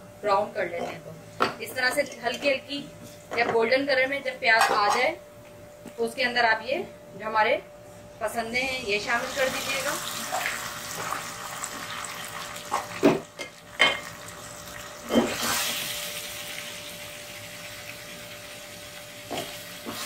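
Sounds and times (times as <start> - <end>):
meat sizzling in hot oil: 9.1 - 20.0.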